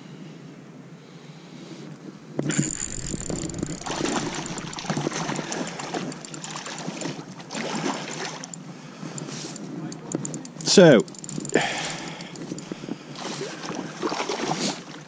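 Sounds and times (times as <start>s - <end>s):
fish splashing and thrashing: 2.4s - 15.0s
short clicks and taps: 2.5s - 8.6s, 9.2s - 12.8s.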